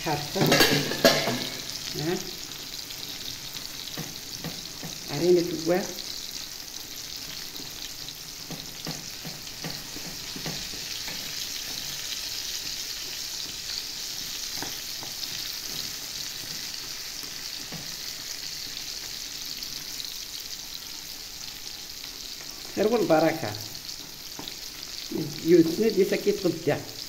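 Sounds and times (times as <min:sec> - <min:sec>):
sauce sizzling in a pan: 0:00.0 - 0:27.0
wooden spoon knocking a pan: 0:00.4 - 0:01.7, 0:03.8 - 0:05.1, 0:08.4 - 0:12.1, 0:14.5 - 0:16.7.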